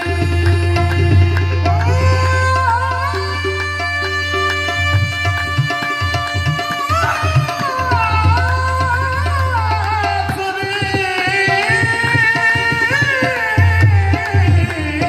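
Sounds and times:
harmonium chords: 0.0 - 15.0
tabla strokes: 0.0 - 15.0.

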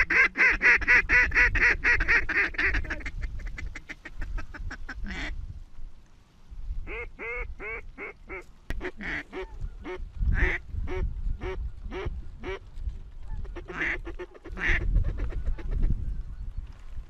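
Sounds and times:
duck quacking: 0.0 - 5.4, 6.9 - 12.6, 13.4 - 15.8
wind rumbling on microphone: 0.0 - 17.0.

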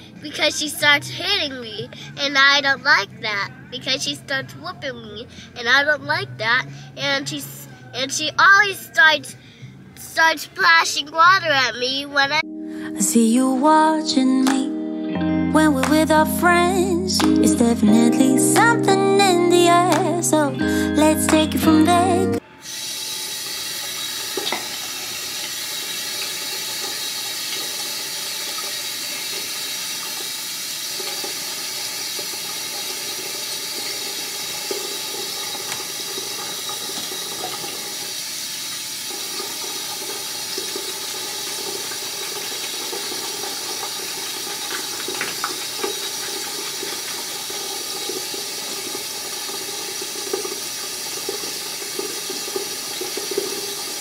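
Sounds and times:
sink tap running: 22.6 - 54.0.

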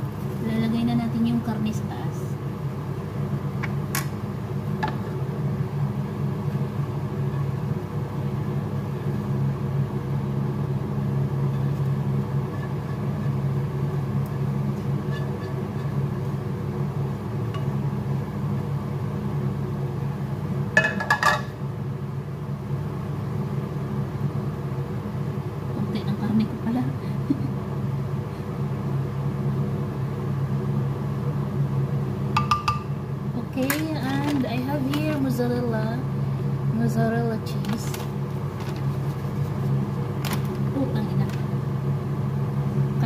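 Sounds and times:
low mechanical hum: 0.0 - 43.0.

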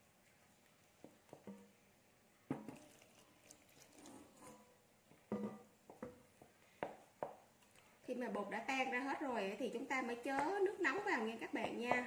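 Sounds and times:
spoon stirring batter: 0.0 - 8.4
spoon knocking ceramic bowl: 5.3 - 6.1.

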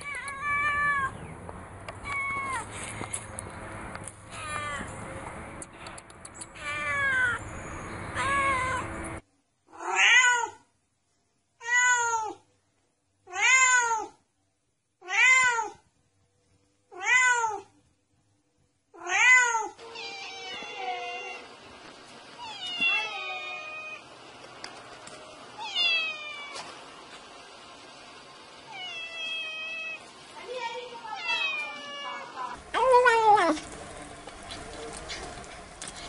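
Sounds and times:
cat meowing: 0.0 - 1.2, 2.0 - 2.7, 4.3 - 4.9, 6.6 - 7.4, 8.1 - 8.9, 9.7 - 10.6, 11.6 - 12.4, 13.3 - 14.2, 15.0 - 15.8, 16.9 - 17.7, 19.0 - 21.5, 22.4 - 24.0, 25.6 - 26.6, 28.7 - 30.0, 31.1 - 32.5
background noise: 8.7 - 20.5.

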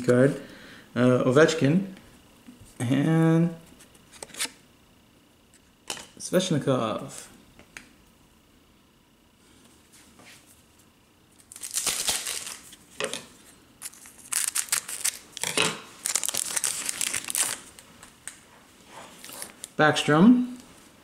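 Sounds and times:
wrapper crinkling and tearing: 11.4 - 12.8, 13.8 - 18.1.

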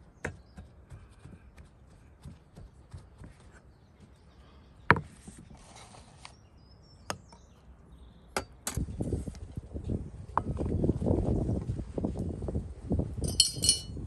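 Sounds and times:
kitchenware clinking: 13.2 - 14.0.

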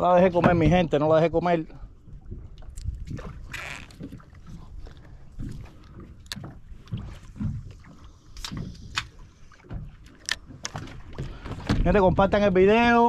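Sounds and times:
waves slapping boat hull: 0.0 - 13.0
wind rumble on microphone: 0.2 - 9.9, 10.8 - 13.0
fishing tackle clicks and knocks: 5.4 - 7.5, 8.4 - 11.9.

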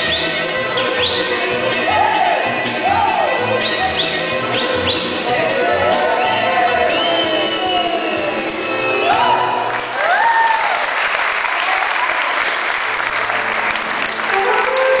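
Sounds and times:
vocal calls: 0.0 - 9.7
folk dance music: 0.0 - 10.3, 12.8 - 15.0
audience applauding: 3.0 - 15.0.

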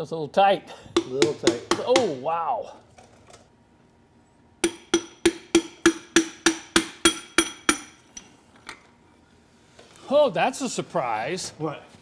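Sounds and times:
hammer tapping on metal: 1.0 - 2.2, 4.6 - 8.0.

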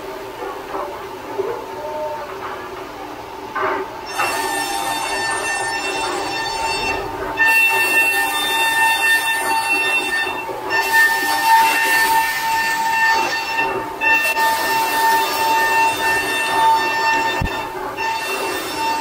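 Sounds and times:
hiss of metal cutting: 3.6 - 19.0
milling spindle whine: 4.0 - 19.0.

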